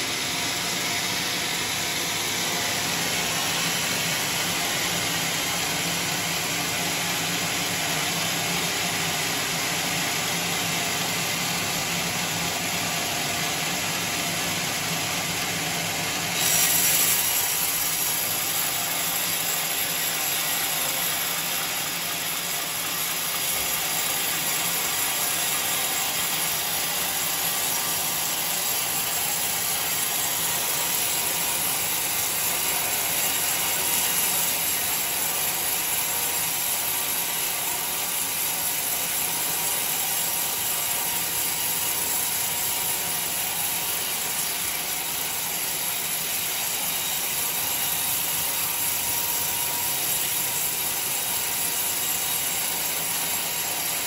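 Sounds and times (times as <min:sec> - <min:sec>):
sawmill machine running: 0:00.0 - 0:54.0
band saw hissing through wood: 0:16.3 - 0:26.4.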